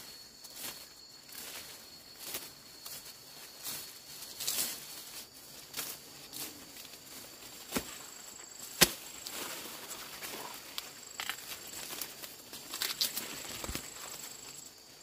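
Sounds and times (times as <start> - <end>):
leaves rustling: 0.0 - 15.0
blade chopping plant: 8.8 - 9.0.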